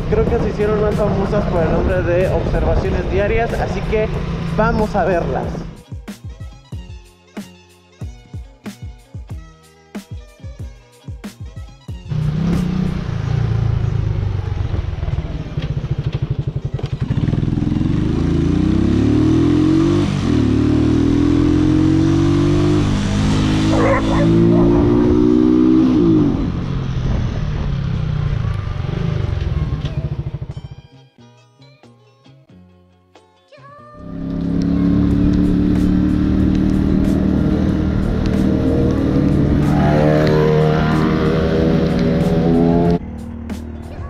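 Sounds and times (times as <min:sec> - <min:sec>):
motorcycle engine revving: 0:00.0 - 0:05.8, 0:12.1 - 0:30.9, 0:34.0 - 0:44.0.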